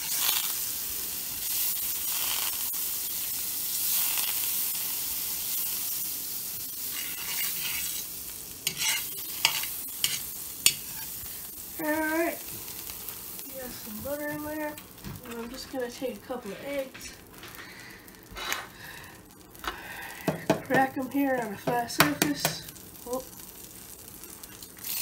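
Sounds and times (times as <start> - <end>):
butter sizzling in a skillet: 0.0 - 25.0
wooden spatula stirring in pan: 6.8 - 12.9.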